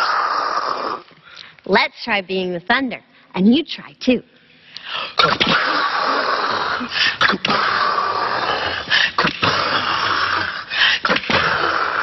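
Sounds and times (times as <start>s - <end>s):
people making breathy hissing: 4.8s - 12.0s.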